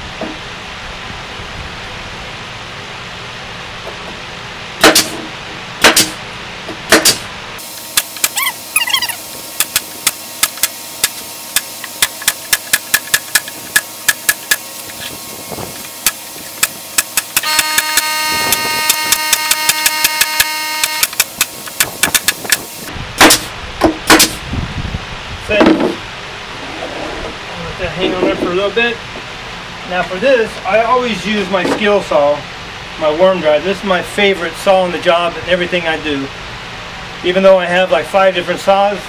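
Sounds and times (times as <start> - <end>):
pneumatic stapler firing: 4.8 - 6.2, 6.9 - 15.2, 15.8 - 24.4
droning tone: 7.6 - 22.9.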